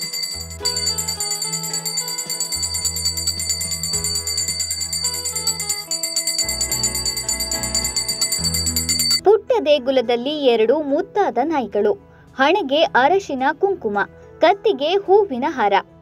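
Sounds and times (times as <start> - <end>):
background music with jingling bells: 0.0 - 9.2.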